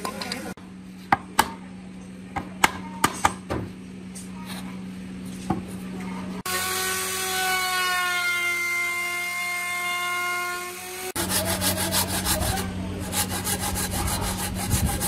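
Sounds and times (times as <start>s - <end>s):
power tool cutting wood: 6.4s - 15.0s.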